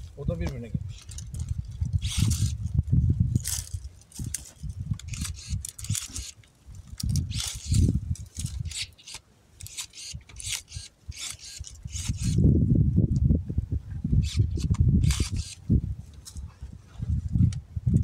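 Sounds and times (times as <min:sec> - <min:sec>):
branches rustling: 0:00.0 - 0:12.6
pruning shears snipping: 0:03.4 - 0:12.4, 0:14.2 - 0:15.6.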